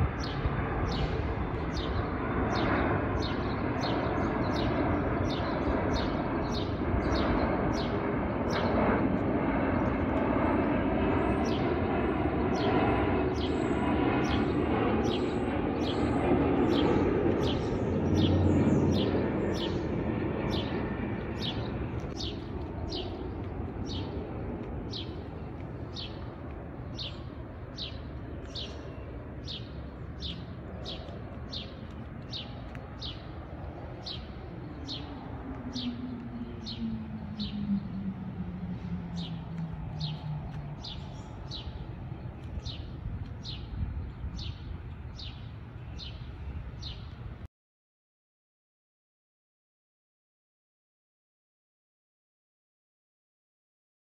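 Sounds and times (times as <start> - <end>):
jet airliner engine rumble: 0.0 - 47.5.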